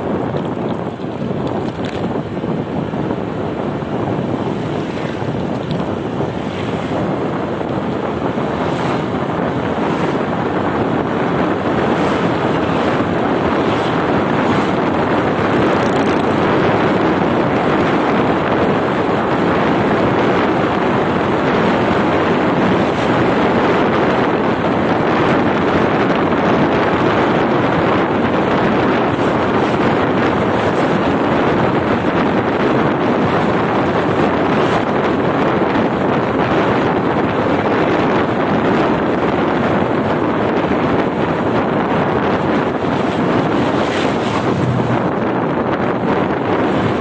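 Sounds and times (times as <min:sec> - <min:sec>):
wind rushing over microphone: 0:00.0 - 0:47.0
motorcycle engine: 0:03.1 - 0:35.3.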